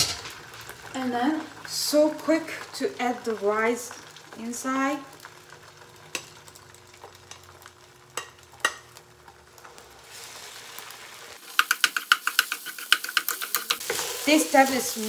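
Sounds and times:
rice and egg sizzling in pan: 0.0 - 15.0
rapid stirring strokes in pan: 10.0 - 15.0.

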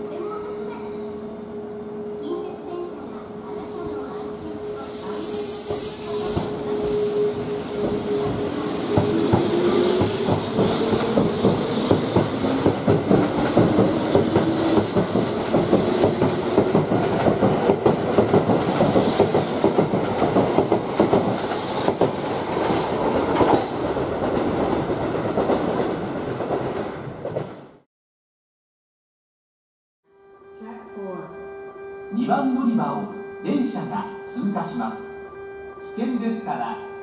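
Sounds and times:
train motor whine rising: 3.6 - 16.8
train wheels clattering on rails: 5.2 - 27.8.

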